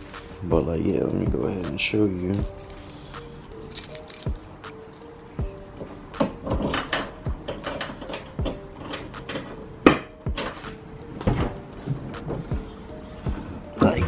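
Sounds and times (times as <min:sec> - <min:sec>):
keys rattling: 0:01.8 - 0:09.6
lock and latch clicking: 0:05.8 - 0:10.6.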